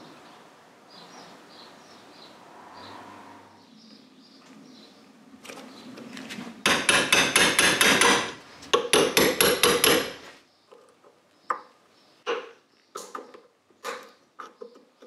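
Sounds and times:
hammer tapping on metal: 0:06.7 - 0:10.2.

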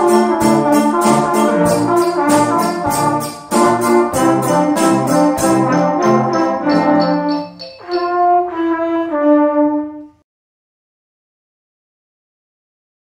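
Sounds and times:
drum beats: 0:00.0 - 0:08.5
wind band playing: 0:00.0 - 0:10.1.

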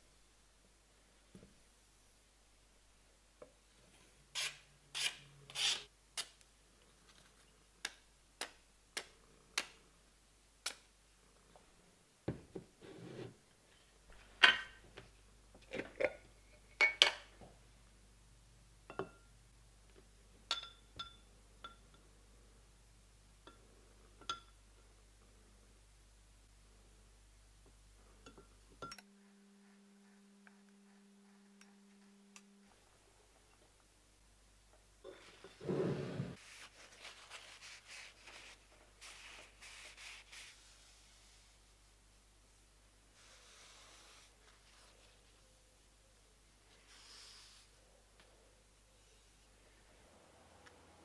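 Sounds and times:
ringing glass clinks: 0:20.5 - 0:21.8.

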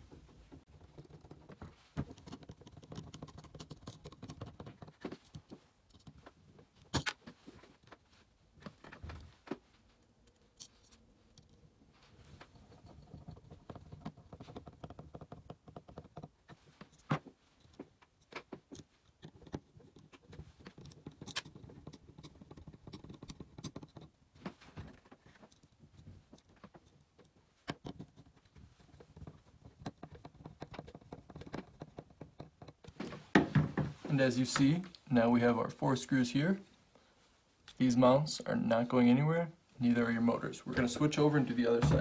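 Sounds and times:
screwdriver clicking and scraping: 0:00.8 - 0:08.0, 0:12.5 - 0:24.2.

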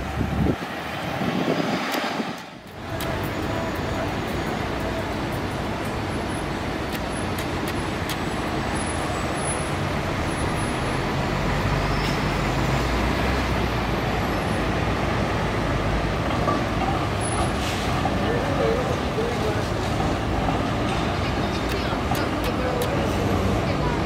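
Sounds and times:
heavy vehicle engine humming: 0:00.0 - 0:24.0
road traffic noise: 0:00.0 - 0:24.0.

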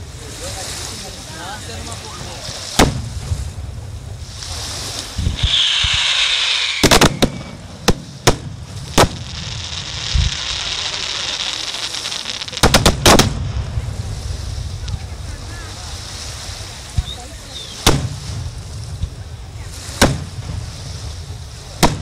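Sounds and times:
firework bangs: 0:02.0 - 0:22.0
firework whistle falling: 0:05.2 - 0:07.8.

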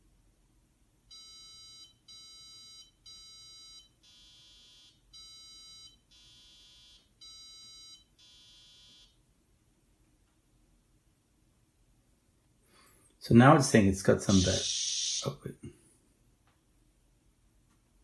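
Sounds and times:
computer beeper beeps: 0:01.1 - 0:09.2, 0:14.2 - 0:15.4.

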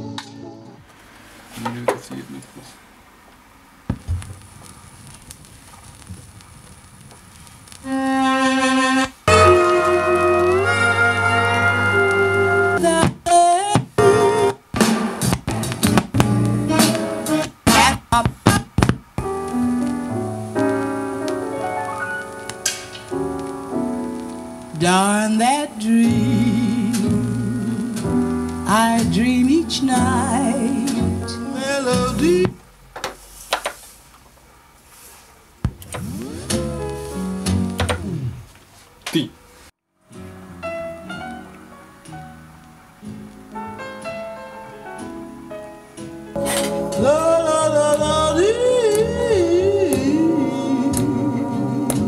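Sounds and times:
vinyl crackle: 0:00.1 - 0:52.0
record playing steady note: 0:03.8 - 0:32.9, 0:35.6 - 0:38.6, 0:40.2 - 0:44.8, 0:46.3 - 0:52.0
record handling thumps: 0:03.9 - 0:06.2, 0:12.8 - 0:24.7, 0:35.6 - 0:38.4.

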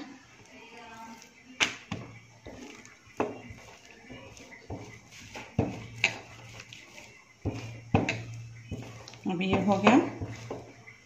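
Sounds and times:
rolling pin knocking on countertop: 0:01.6 - 0:06.7, 0:07.4 - 0:11.0.

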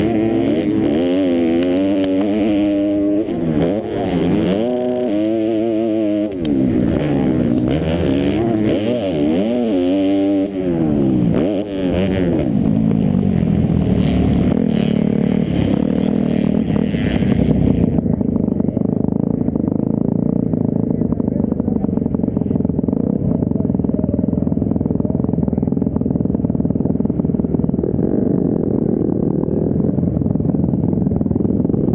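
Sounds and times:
motocross bike engine revving: 0:00.0 - 0:23.9
dull engine drone: 0:00.0 - 0:31.9.

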